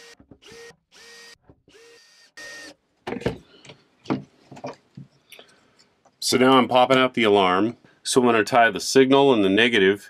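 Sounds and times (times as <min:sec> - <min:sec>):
cordless drill whirring: 0:00.0 - 0:02.8.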